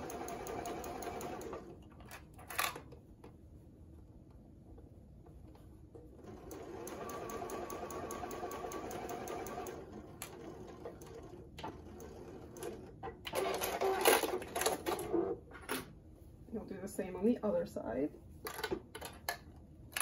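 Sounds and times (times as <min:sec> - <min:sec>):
sewing machine stitching: 0:06.2 - 0:15.2.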